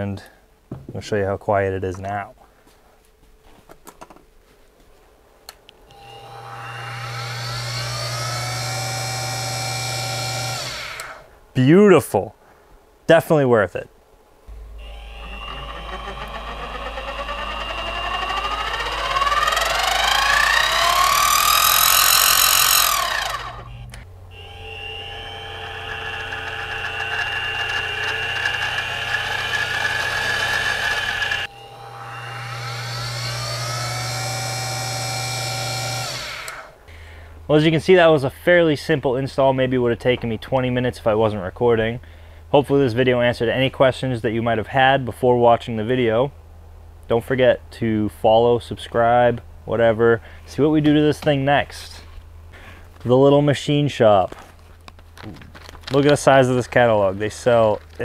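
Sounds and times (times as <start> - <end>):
mill motor whine and hum: 5.8 - 11.3, 14.5 - 36.9.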